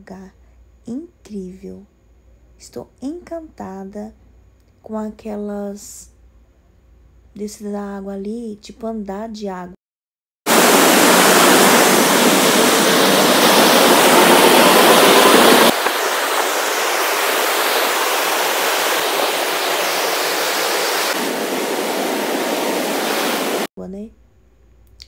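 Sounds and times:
rushing white water: 0:10.5 - 0:23.7.

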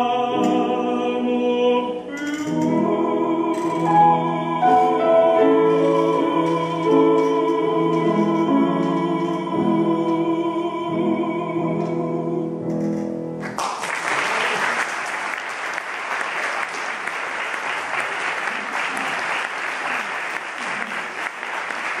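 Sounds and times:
man singing held note: 0:00.0 - 0:11.1
piano chord: 0:02.5 - 0:13.4
audience applauding: 0:13.4 - 0:22.0.

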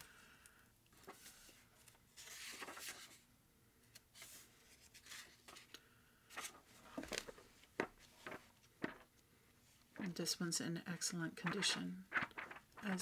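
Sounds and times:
book pages turning: 0:01.0 - 0:03.2, 0:03.9 - 0:09.2, 0:11.4 - 0:13.0
soft knocks of book handling: 0:06.4 - 0:09.1.

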